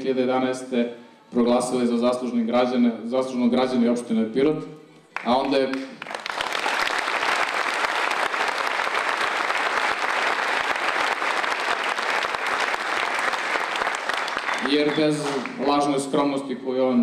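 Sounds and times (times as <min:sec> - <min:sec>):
audience applauding: 0:05.2 - 0:15.9.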